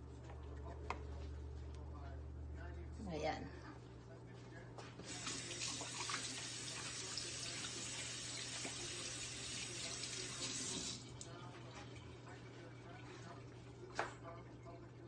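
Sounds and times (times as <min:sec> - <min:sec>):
kitchen tap running: 0:05.0 - 0:11.3.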